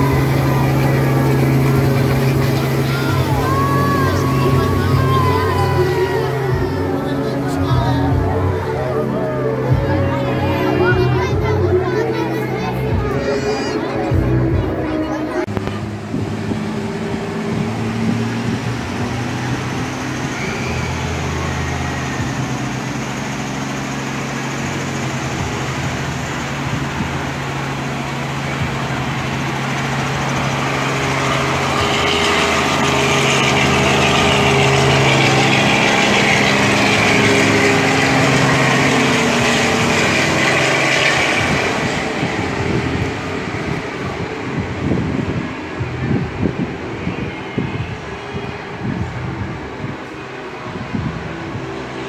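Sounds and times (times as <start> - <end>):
helicopter rotor and engine: 0.0 - 52.0.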